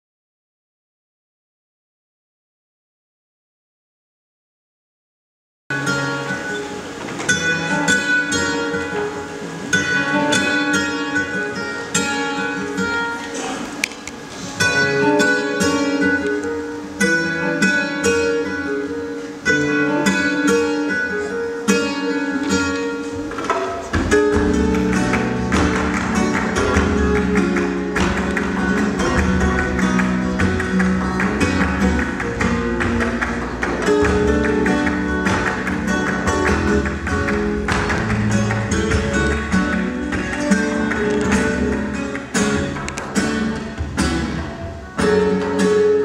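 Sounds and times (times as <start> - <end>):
flamenco guitar music over loudspeakers: 5.7 - 46.0
steady bass: 23.9 - 45.2.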